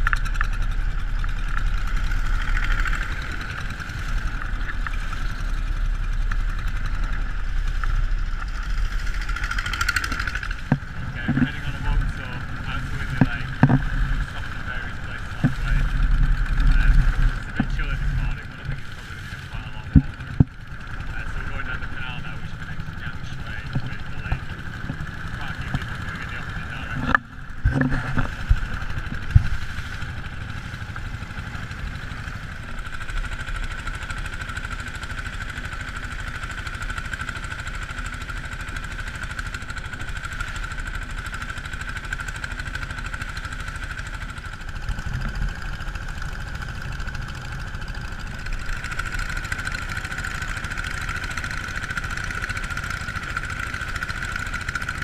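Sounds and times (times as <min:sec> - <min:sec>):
boat engine running: 0:00.0 - 0:55.0
sharp thumps: 0:09.2 - 0:14.4.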